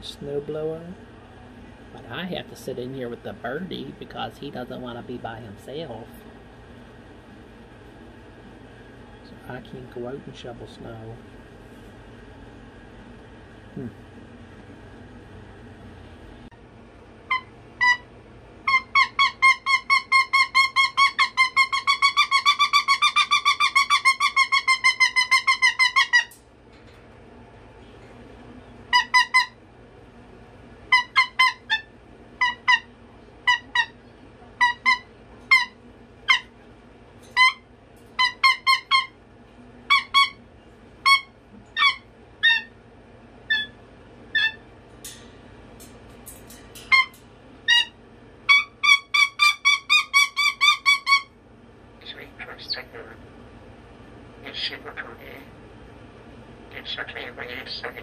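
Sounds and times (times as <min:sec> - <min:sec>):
cockatoo honking calls: 0:17.2 - 0:26.4, 0:28.9 - 0:29.6, 0:30.9 - 0:34.0, 0:34.6 - 0:36.6, 0:37.3 - 0:39.2, 0:39.9 - 0:40.4, 0:41.0 - 0:42.8, 0:46.8 - 0:51.3.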